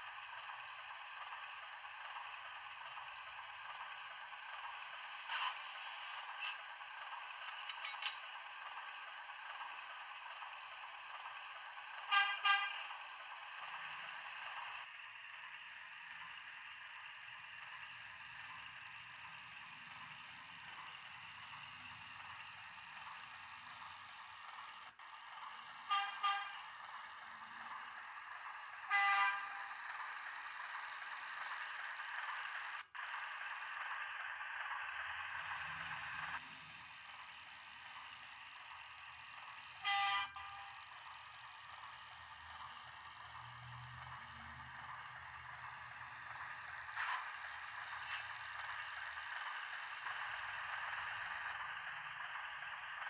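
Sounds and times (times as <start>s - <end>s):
model train engine sound: 0.0s - 53.0s
train horn toots: 12.0s - 12.9s, 25.8s - 26.7s, 28.8s - 29.8s, 39.8s - 40.8s.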